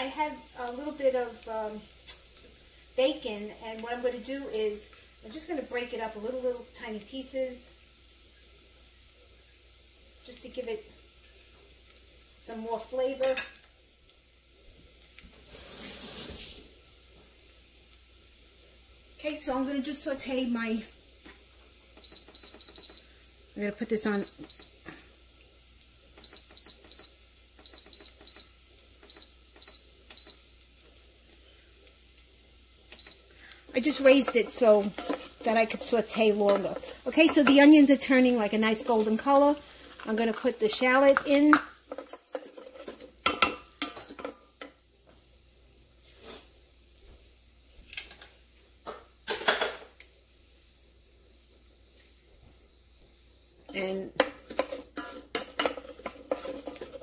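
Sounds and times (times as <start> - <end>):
utensil scraping a metal pot: 33.8 - 43.6, 53.7 - 57.0.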